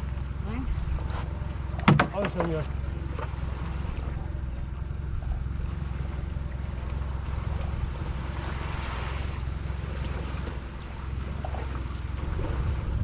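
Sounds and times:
waves slapping boat hull: 0.0s - 13.0s
wind rumbling on microphone: 0.0s - 13.0s.

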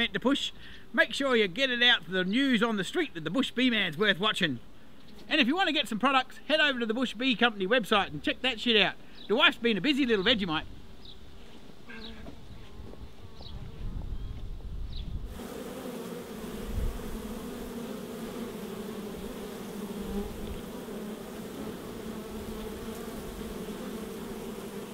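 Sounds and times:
bees buzzing: 15.3s - 24.9s.

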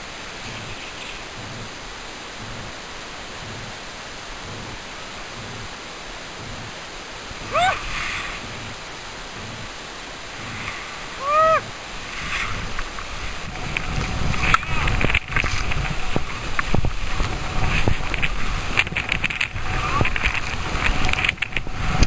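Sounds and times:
steady rushing hiss: 0.0s - 22.0s
high-pitched cries: 7.5s - 7.8s, 11.2s - 11.7s.

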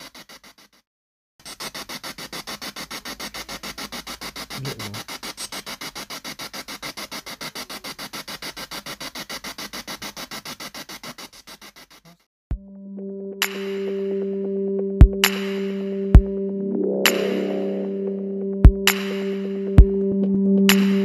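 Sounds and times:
radio static bursts: 1.5s - 8.2s
music: 12.5s - 21.0s.

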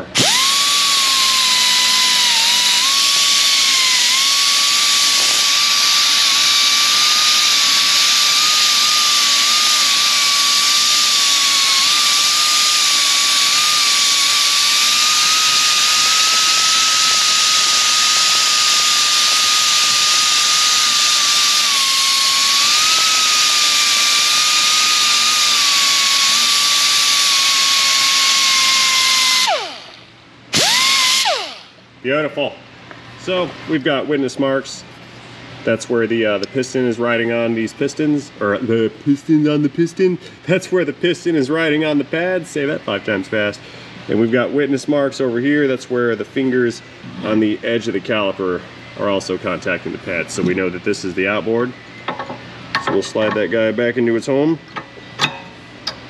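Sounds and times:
rotary grinder whining: 0.0s - 31.8s.

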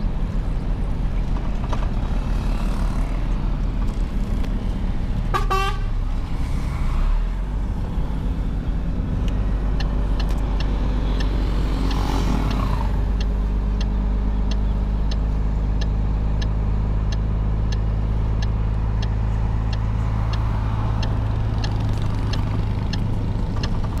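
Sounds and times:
light ticking: 9.2s - 24.0s.

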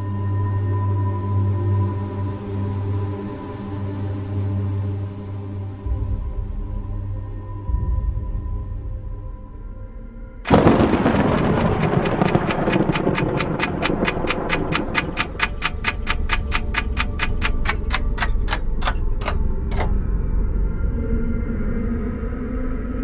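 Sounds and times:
low drone: 5.4s - 23.0s
clock ticking fast: 10.5s - 20.1s
loud hit: 10.5s - 20.1s.

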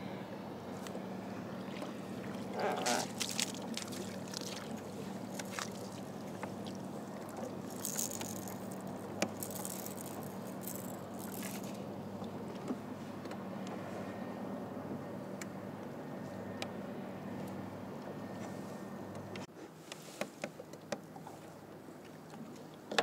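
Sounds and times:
steady low hum: 0.0s - 19.5s
water splashing and trickling: 1.6s - 12.4s.

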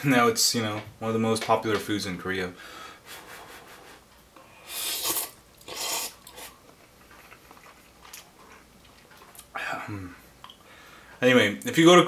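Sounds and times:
person slurping noodles: 4.5s - 6.6s.

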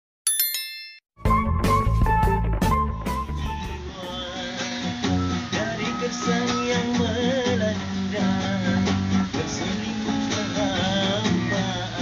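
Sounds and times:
acoustic guitar strumming: 1.2s - 12.0s
man singing: 3.2s - 12.0s.

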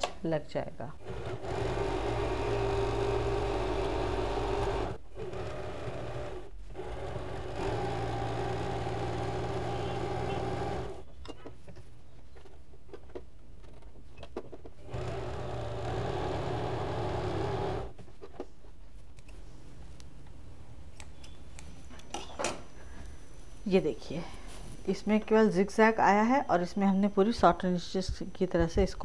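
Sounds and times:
electric sewing machine running: 1.0s - 11.0s, 14.8s - 17.9s.

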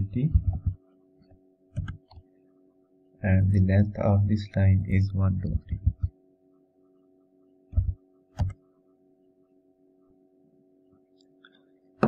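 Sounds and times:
faint steady hum: 0.0s - 12.0s
keyboard key presses: 1.8s - 2.2s, 7.8s - 8.6s.

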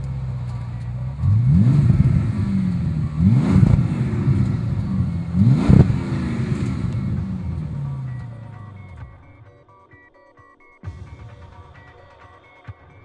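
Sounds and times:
car engine revving: 0.0s - 9.2s.

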